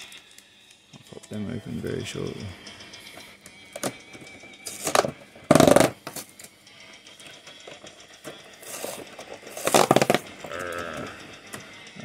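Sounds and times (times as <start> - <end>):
cardboard ripping: 8.6 - 10.2.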